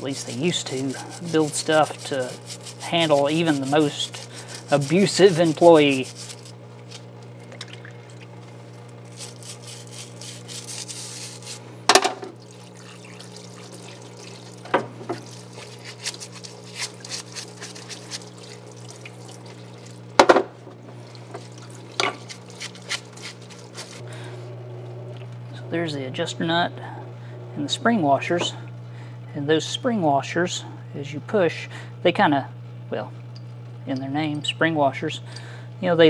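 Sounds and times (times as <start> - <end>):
pump humming: 0.0 - 36.0
solvent splashing over metal: 9.1 - 20.2.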